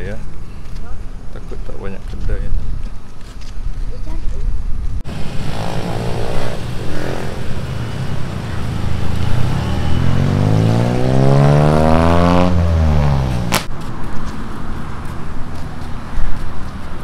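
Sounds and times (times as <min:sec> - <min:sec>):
road traffic passing: 0:05.0 - 0:17.0
vehicle engine passing by: 0:05.1 - 0:13.6
sharp click: 0:13.5 - 0:13.7.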